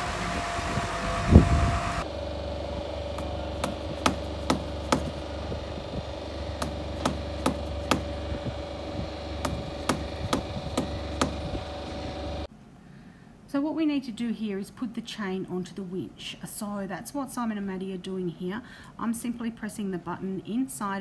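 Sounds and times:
steady engine hum: 0.0 - 12.5
sharp metallic tapping: 3.2 - 5.2, 6.6 - 8.2, 9.4 - 11.5.

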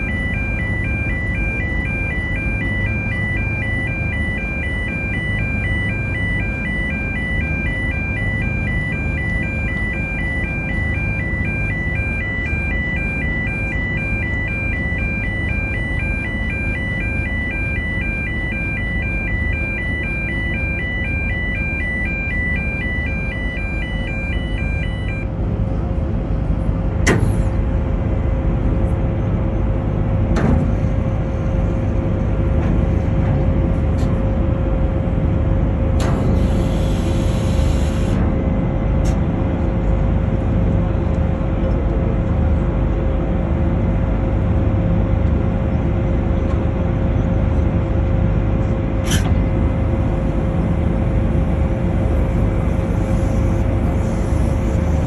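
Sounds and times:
two-tone electronic warning alarm: 0.0 - 25.3, 36.2 - 38.2
ship engines rumbling: 0.0 - 55.0.

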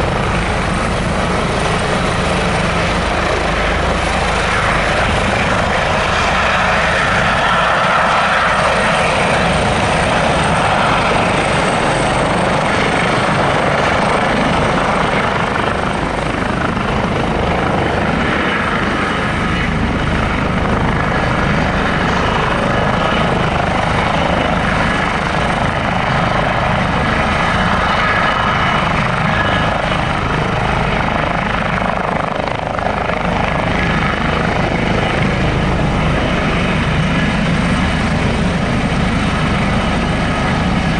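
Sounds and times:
helicopter hovering: 0.0 - 40.9.

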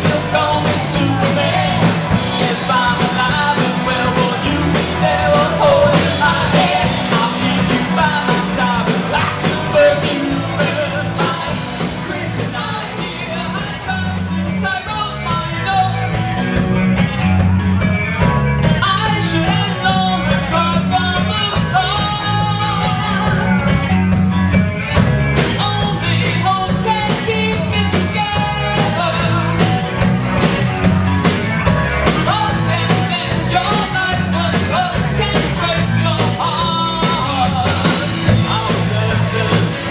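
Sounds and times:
lead vocals singing: 0.0 - 16.1, 25.5 - 30.0, 32.0 - 39.9
live rock band playing: 0.0 - 39.9.

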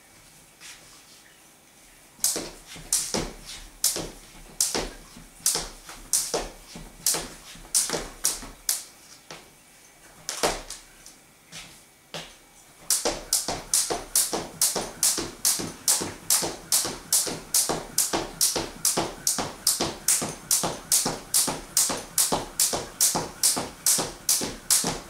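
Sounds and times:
jump rope slapping wooden floor: 2.2 - 8.9, 10.2 - 10.9, 12.2 - 25.0
feet landing: 2.2 - 9.5, 10.1 - 25.0.

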